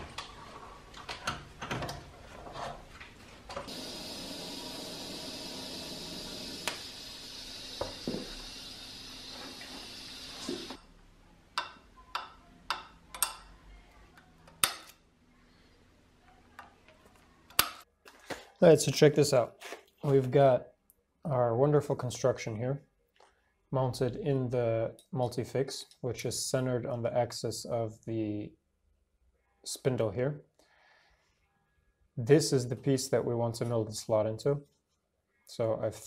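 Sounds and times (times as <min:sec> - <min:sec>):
welding arc hissing: 0:03.7 - 0:10.8.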